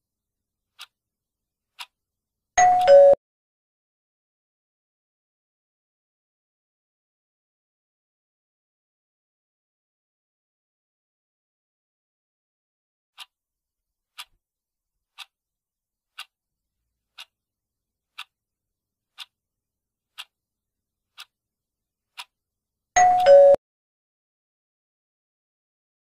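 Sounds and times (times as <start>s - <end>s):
countdown timer ticking: 2.6s - 3.2s, 23.0s - 23.6s.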